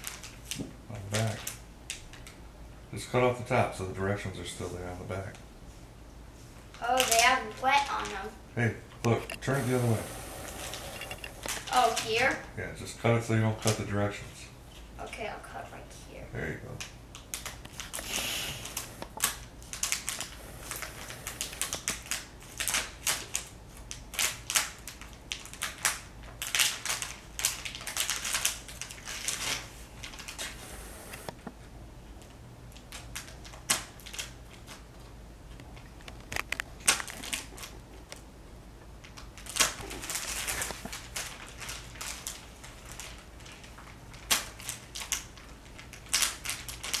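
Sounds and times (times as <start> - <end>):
plastic bag crinkling: 0.0 - 2.4, 9.1 - 12.5, 17.1 - 31.3, 35.8 - 38.2, 39.0 - 47.0.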